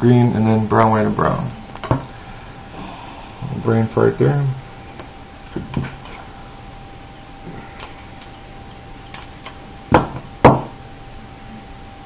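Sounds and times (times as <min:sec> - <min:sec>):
sharp clicks: 0:09.1 - 0:09.6.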